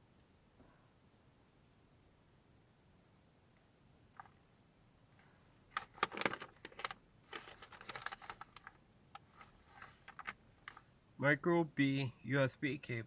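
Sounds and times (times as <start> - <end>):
packaging rustling: 5.7 - 10.9.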